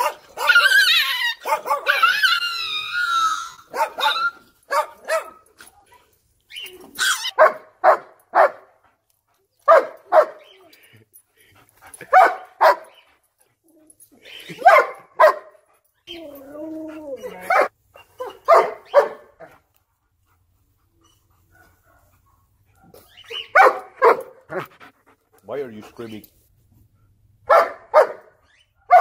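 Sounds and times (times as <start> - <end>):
dog barking: 0.0 - 0.8, 1.4 - 2.1, 3.7 - 5.5, 7.2 - 8.7, 9.7 - 10.5, 12.1 - 13.0, 14.6 - 15.6, 17.5 - 19.5, 21.5 - 22.1, 22.7 - 24.6, 27.5 - 29.0
dog whining yelps: 0.0 - 5.3, 6.5 - 7.5, 16.0 - 19.2, 22.8 - 24.2.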